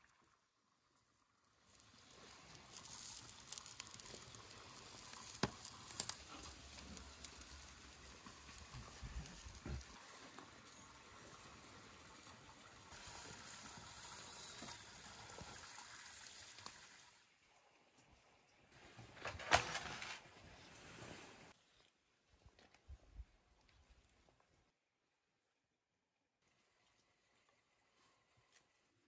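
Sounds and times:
kebabs sizzling on tray: 1.6 - 17.0.

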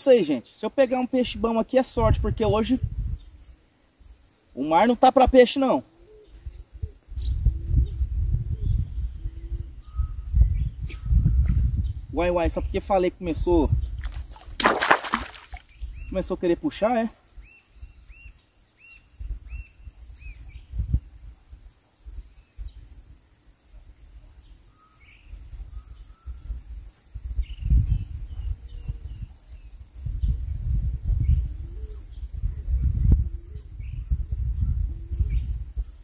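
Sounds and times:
insects trilling: 0.0 - 36.0
low rumble on microphone: 2.0 - 3.4, 6.2 - 14.2, 25.3 - 36.0
bird calls and chirps: 3.0 - 12.8, 13.4 - 14.4, 15.4 - 36.0.

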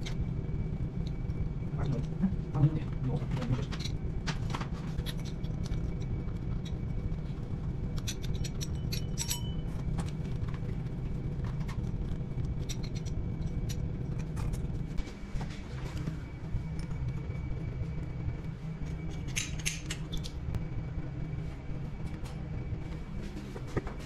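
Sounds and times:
steady low rumble: 0.0 - 24.0
metallic clicks and scrapes: 8.0 - 10.7, 11.6 - 14.7.

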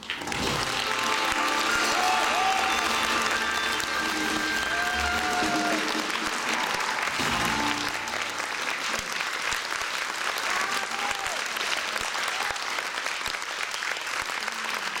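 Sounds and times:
audience applauding: 0.0 - 15.0
band playing last note: 0.3 - 8.6.

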